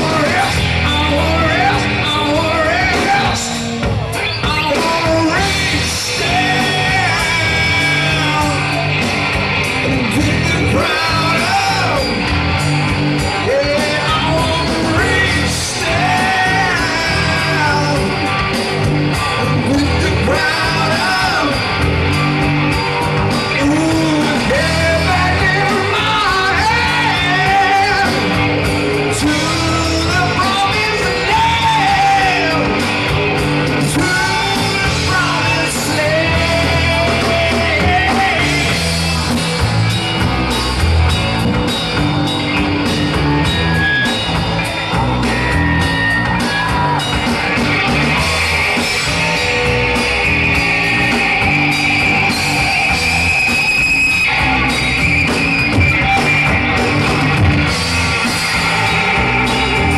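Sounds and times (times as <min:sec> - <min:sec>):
rock band playing live: 0:00.0 - 0:59.9
person singing: 0:04.2 - 0:08.9, 0:09.9 - 0:12.2, 0:13.3 - 0:18.5, 0:19.4 - 0:21.8, 0:23.4 - 0:32.9, 0:33.8 - 0:39.1.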